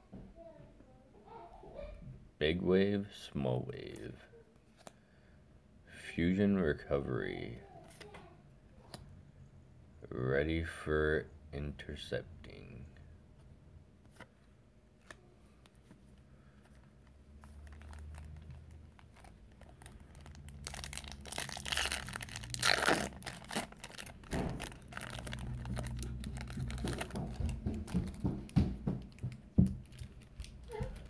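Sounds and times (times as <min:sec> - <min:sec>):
cards being handled: 0:15.0 - 0:31.0
foil wrapper crinkling: 0:17.3 - 0:31.0.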